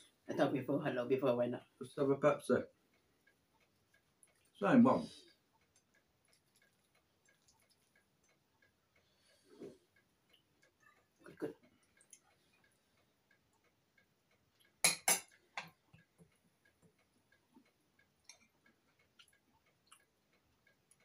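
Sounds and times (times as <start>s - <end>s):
faint steady ticking: 0.0s - 21.0s
cutlery clinking on plate: 14.8s - 15.7s.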